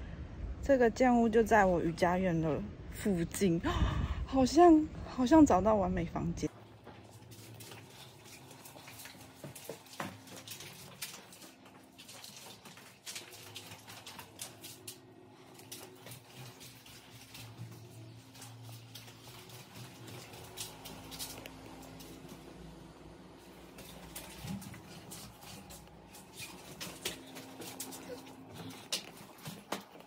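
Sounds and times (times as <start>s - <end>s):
low steady hum: 0.0s - 30.0s
faint footsteps: 13.8s - 22.6s, 23.4s - 30.0s.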